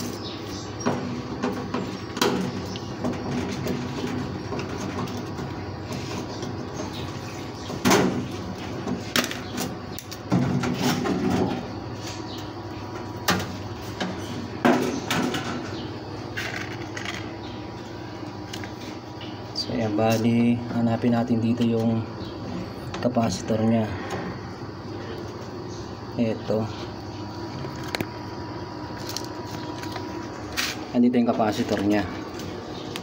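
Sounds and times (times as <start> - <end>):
panel clattering and scraping: 0.8 - 12.3, 13.0 - 17.3.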